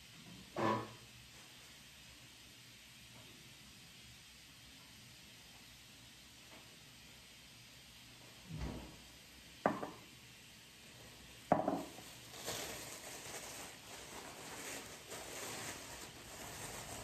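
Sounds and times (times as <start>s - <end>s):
glass jars knocking on countertop: 9.7s - 10.0s, 11.5s - 11.9s
plastic bag crinkling: 11.8s - 17.0s.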